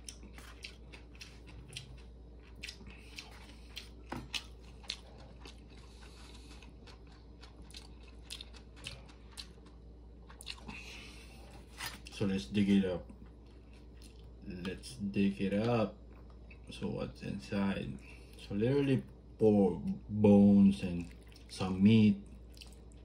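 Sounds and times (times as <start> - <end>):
person chewing food: 0.0 - 15.0, 16.0 - 16.7, 20.8 - 21.6, 22.2 - 23.0.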